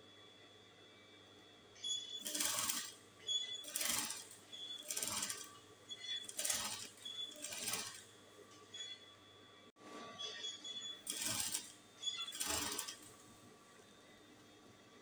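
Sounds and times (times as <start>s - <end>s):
sewing machine stitching: 2.2s - 8.1s, 11.0s - 13.1s.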